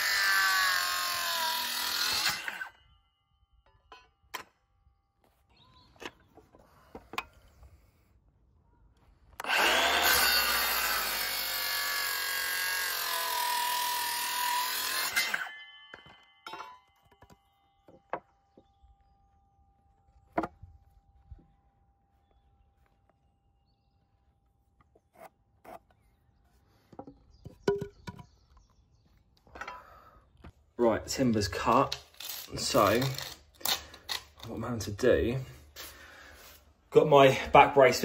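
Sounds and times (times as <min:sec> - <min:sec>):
circular saw cutting timber: 0:00.0 - 0:03.0, 0:09.3 - 0:16.3, 0:30.9 - 0:36.0.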